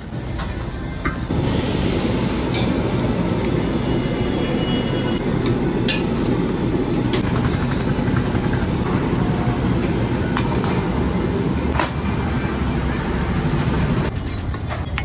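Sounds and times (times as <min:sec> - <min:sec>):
gas burner rumble: 0:00.0 - 0:14.6.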